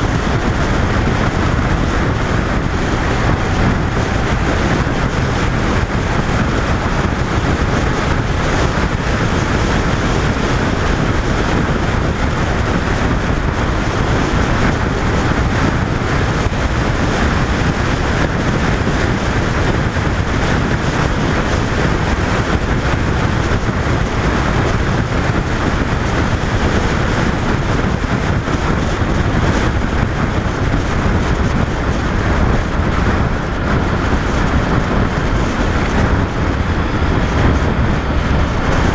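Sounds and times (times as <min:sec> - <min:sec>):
wind rushing over microphone: 0:00.0 - 0:38.9.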